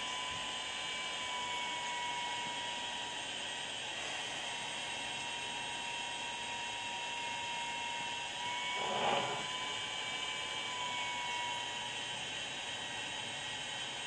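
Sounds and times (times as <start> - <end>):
rework station hiss: 8.8 - 9.5
rustle of heat lamp moved: 8.8 - 9.5.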